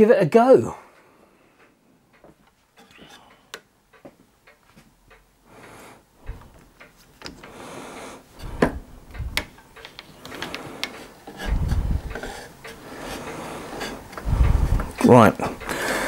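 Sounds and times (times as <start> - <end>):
clicks and knocks of handling: 6.2 - 7.5, 8.4 - 15.8.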